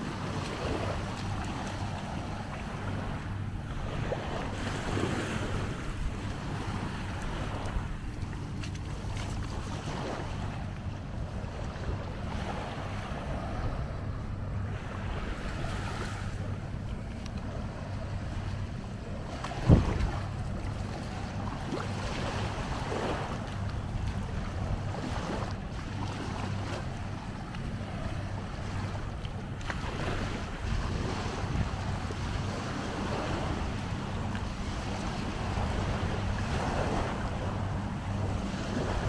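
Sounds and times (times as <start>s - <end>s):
feet splashing through water: 0.0s - 10.6s, 18.3s - 37.8s
small waves lapping: 0.0s - 39.0s
wind rumbling on microphone: 0.0s - 39.0s.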